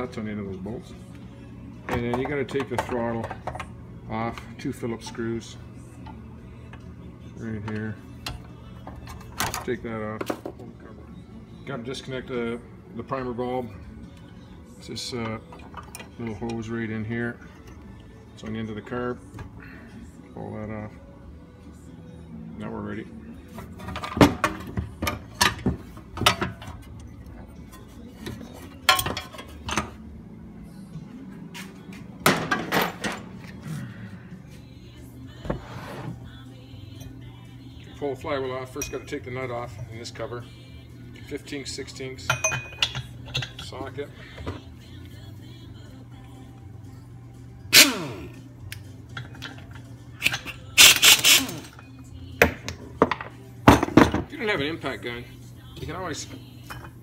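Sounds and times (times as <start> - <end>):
faint background music: 0.0 - 57.0
air impact wrench hammering: 50.8 - 51.7.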